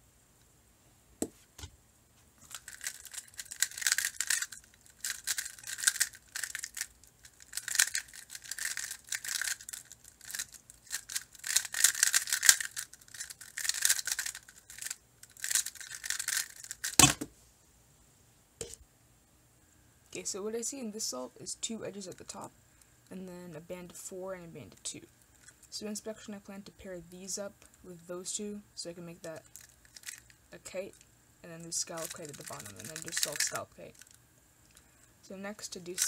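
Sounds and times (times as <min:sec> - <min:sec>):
plastic puzzle clacking: 0:02.5 - 0:17.3, 0:29.6 - 0:30.3, 0:31.9 - 0:34.2, 0:35.8 - 0:36.0
puzzle thump on desk: 0:17.0 - 0:17.3.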